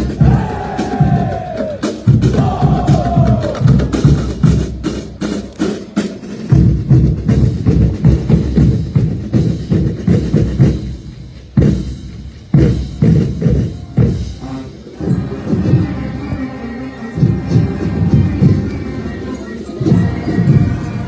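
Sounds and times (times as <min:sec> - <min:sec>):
snare and bass drums cadence: 0:00.0 - 0:14.4.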